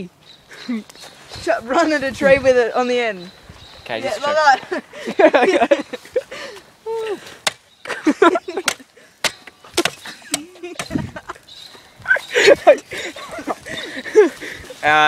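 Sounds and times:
phone cracking against tree: 8.6 - 11.1.

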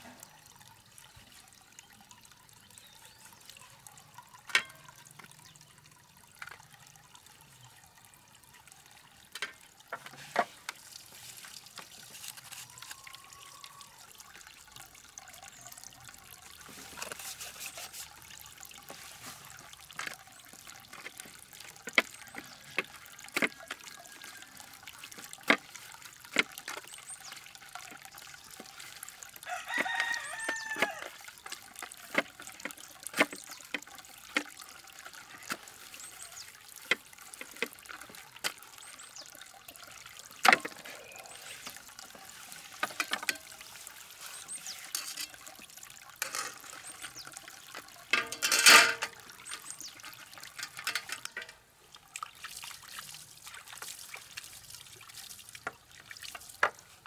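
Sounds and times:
trickle of water: 0.0 - 57.0
rooster crowing: 29.5 - 31.1.

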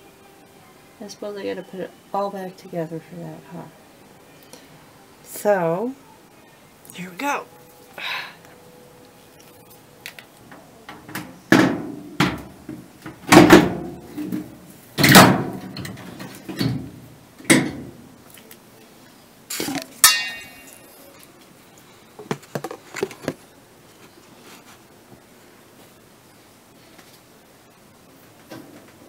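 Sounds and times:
metal panels clunking: 10.9 - 18.0
metallic ring: 20.0 - 21.1.

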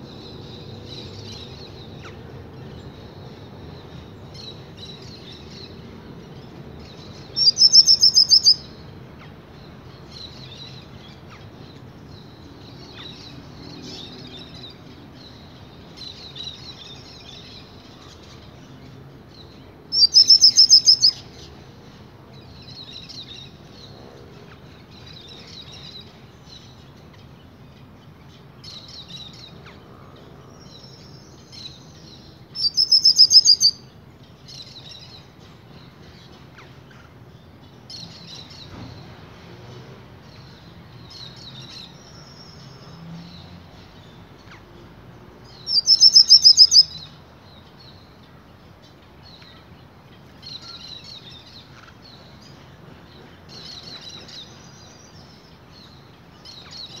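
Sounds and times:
loud rapid bird trill: 7.0 - 8.7, 19.9 - 21.4, 30.8 - 33.9, 45.5 - 47.1
finch twittering: 7.4 - 8.7, 20.0 - 21.2, 32.6 - 33.8, 45.5 - 47.0.

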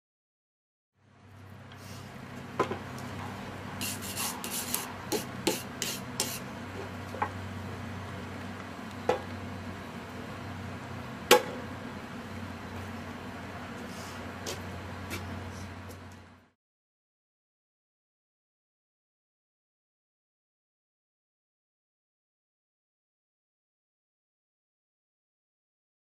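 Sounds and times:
steady low hum: 1.0 - 16.6
rubbing strokes on metal base: 3.8 - 6.5.

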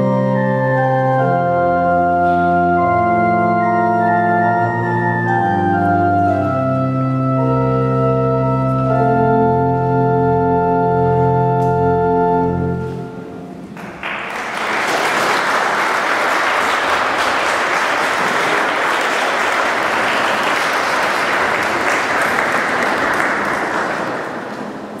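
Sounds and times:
organ chord echoing: 0.0 - 25.0
congregation applauding: 13.7 - 25.0.

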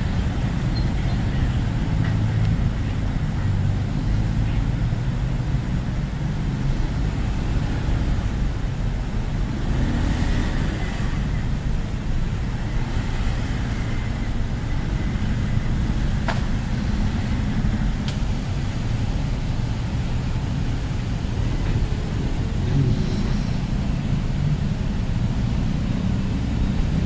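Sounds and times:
low traffic rumble: 0.0 - 27.0
cars driving past: 9.3 - 27.0.

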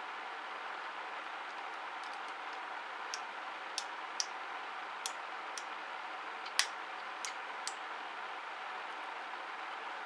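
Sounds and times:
small sharp clicks of metal tab: 6.5 - 7.8.

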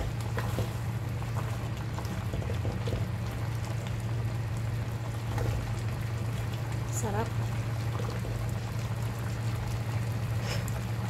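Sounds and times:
spatula moving through liquid: 0.0 - 4.0, 5.0 - 6.6
broth bubbling in a pan: 0.0 - 11.0.

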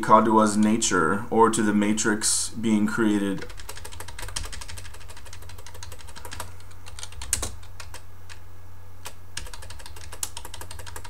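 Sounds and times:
low steady hum: 0.0 - 11.0
keyboard typing: 3.4 - 8.4, 9.0 - 11.0.

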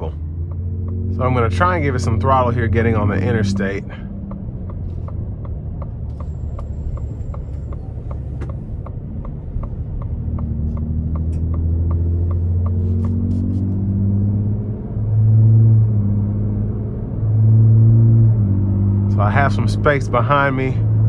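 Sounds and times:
turn signal ticking: 0.0 - 16.0
truck engine drone under throttle: 0.0 - 21.0.

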